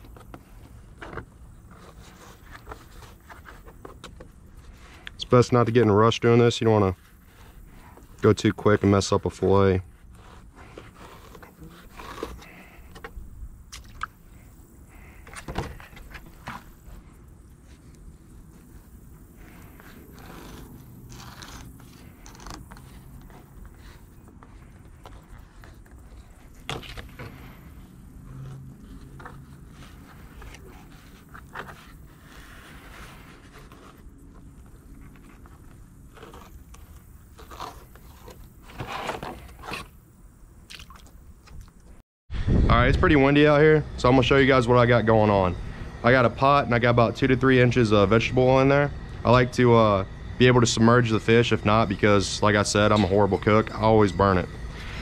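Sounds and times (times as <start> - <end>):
knife scraping fish skin: 36.1 - 40.0
low wind rumble on microphone: 42.3 - 44.6.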